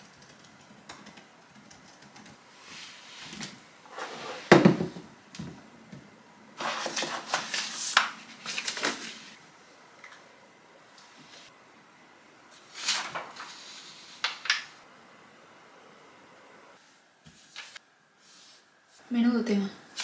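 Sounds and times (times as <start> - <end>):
paper rustling: 6.6 - 9.4, 12.6 - 14.6, 17.3 - 17.8.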